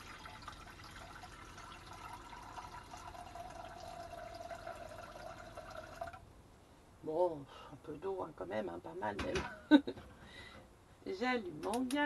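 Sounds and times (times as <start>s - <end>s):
water pouring into a saucepan: 0.0s - 6.2s.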